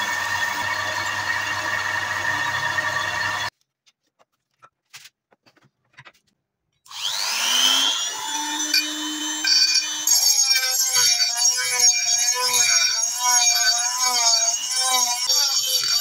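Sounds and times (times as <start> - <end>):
rotary tool grinding steel: 0.0 - 3.5, 6.9 - 16.0.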